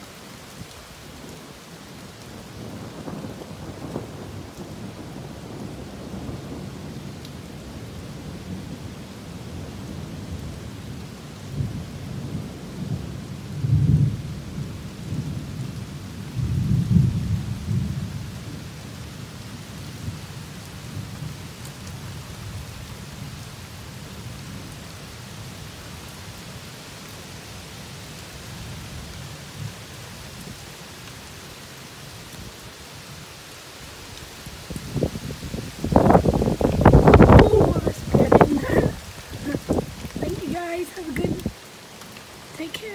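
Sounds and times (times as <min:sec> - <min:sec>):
steady rain: 0:00.0 - 0:42.9
thunder rumbling: 0:02.5 - 0:10.7, 0:34.9 - 0:41.6.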